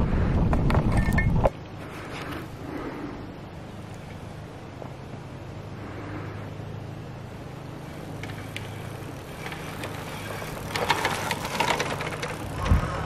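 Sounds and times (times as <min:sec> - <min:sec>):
bike rattling and clattering: 0:00.0 - 0:02.5, 0:07.6 - 0:13.0
bike tires crunching on dirt: 0:07.6 - 0:13.0.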